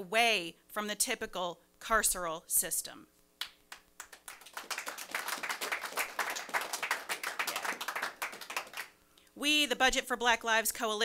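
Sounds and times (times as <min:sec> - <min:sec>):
group of people applauding: 0:03.7 - 0:08.9.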